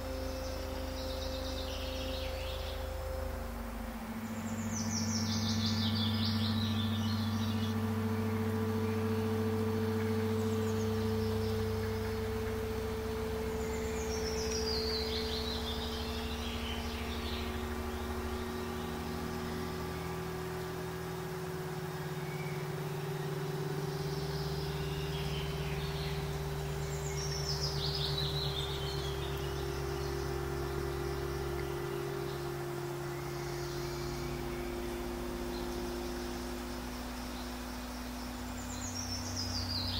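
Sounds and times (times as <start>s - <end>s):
bird chirping trill: 0.0s - 39.9s
low ambient drone: 0.0s - 39.9s.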